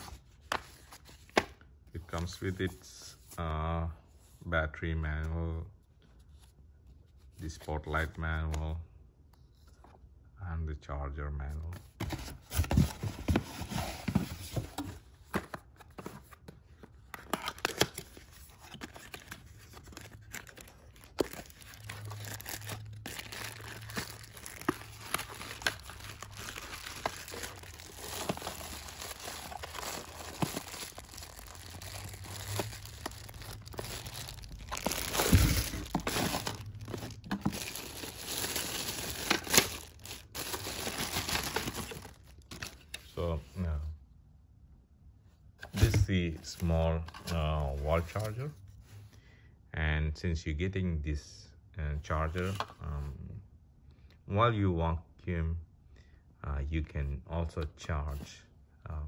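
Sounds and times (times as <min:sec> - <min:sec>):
cardboard and paper rustling: 0:00.0 - 0:03.4, 0:11.7 - 0:43.6, 0:45.6 - 0:49.0.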